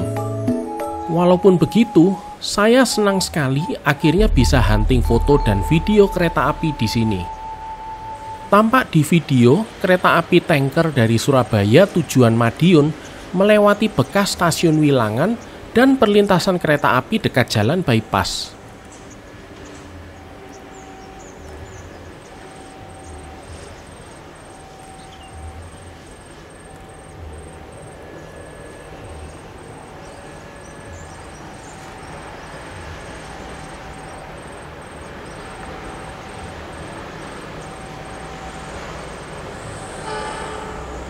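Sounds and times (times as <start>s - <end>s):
level-crossing warning bell: 0.0s - 15.2s, 17.6s - 41.0s.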